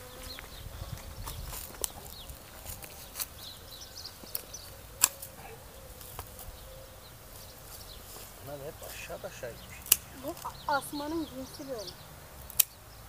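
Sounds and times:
birds chirping: 0:00.0 - 0:13.0
insects buzzing: 0:00.0 - 0:13.0
pruning shears snipping: 0:04.2 - 0:06.4, 0:09.8 - 0:10.6, 0:12.4 - 0:12.8.

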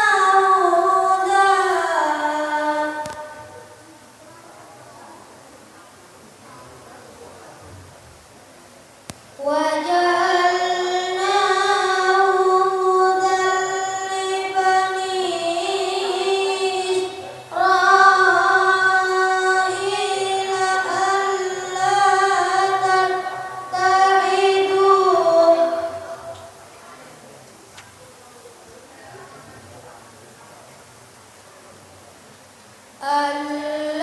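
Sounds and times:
boy reciting melodically: 0:00.0 - 0:04.0, 0:09.2 - 0:26.7, 0:33.0 - 0:34.0.

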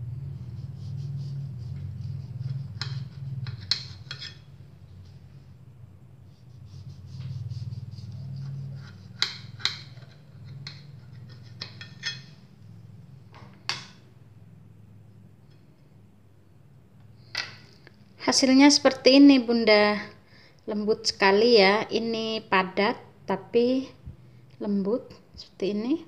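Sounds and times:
low steady hum: 0:00.0 - 0:26.0
knife scraping and clinking on plate: 0:02.4 - 0:04.6, 0:08.8 - 0:12.4.

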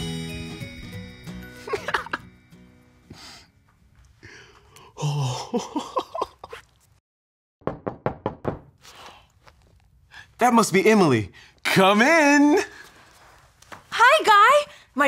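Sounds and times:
man chuckling: 0:01.6 - 0:02.3, 0:05.0 - 0:06.7
knocking on door: 0:07.6 - 0:08.7.

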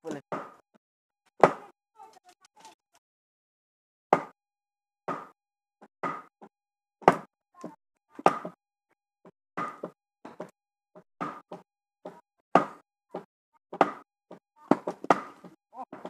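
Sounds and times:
wooden club knocking wedges: 0:00.3 - 0:00.6, 0:04.1 - 0:04.4, 0:05.1 - 0:05.4, 0:06.0 - 0:08.6, 0:09.6 - 0:10.5, 0:11.2 - 0:16.0.

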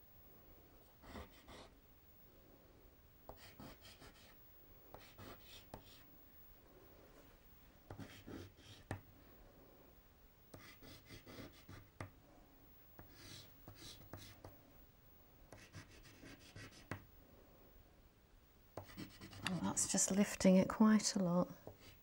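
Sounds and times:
pastel scratching on paper: 0:08.0 - 0:08.9, 0:10.6 - 0:11.9, 0:15.6 - 0:17.0, 0:18.8 - 0:19.8.

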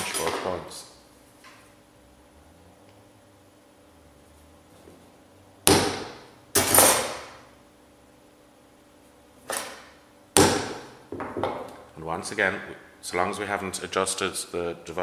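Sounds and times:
hammer striking punch on metal: 0:05.6 - 0:07.3, 0:10.4 - 0:10.9.

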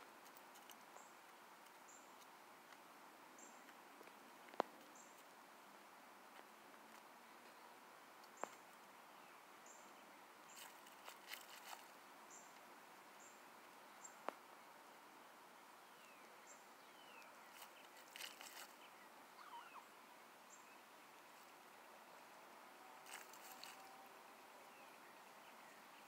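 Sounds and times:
hens scratching dirt: 0:10.5 - 0:12.7, 0:17.2 - 0:19.0, 0:22.9 - 0:24.5
faint high chirps: 0:16.0 - 0:20.8.

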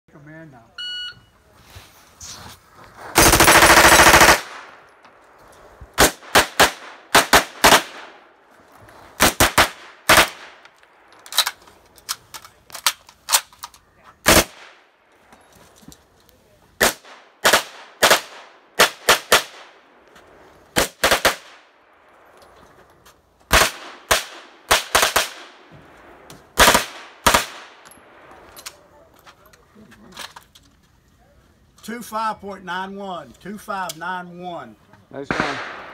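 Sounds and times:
submachine gun bursts: 0:03.2 - 0:04.4.

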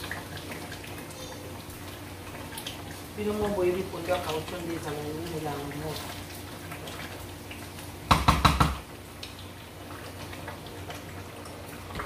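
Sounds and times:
knocks against metal pot: 0:08.1 - 0:08.8.

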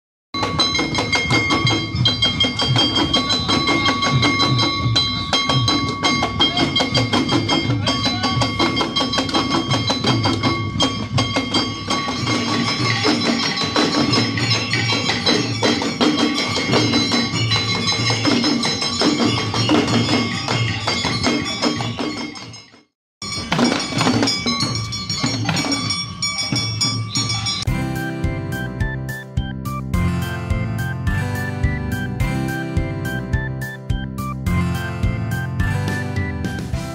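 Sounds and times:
metal gongs ringing: 0:00.4 - 0:22.6, 0:23.2 - 0:27.8
hand-held fan drums beating: 0:00.4 - 0:36.9.

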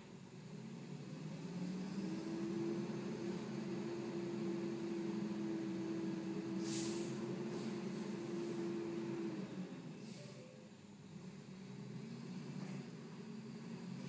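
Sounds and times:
diesel engine humming: 0:00.0 - 0:14.0
short hisses: 0:06.6 - 0:08.1, 0:10.0 - 0:10.6.

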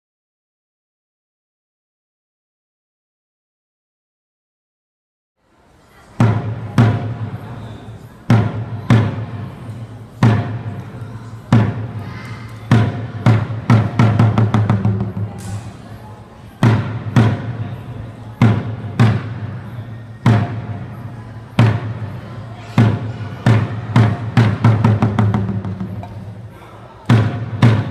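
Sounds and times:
barrel drums struck: 0:06.2 - 0:07.4, 0:10.2 - 0:10.8, 0:12.7 - 0:15.7, 0:16.6 - 0:17.7, 0:18.4 - 0:19.6, 0:20.2 - 0:20.9, 0:22.8 - 0:26.3, 0:27.1 - 0:27.9.

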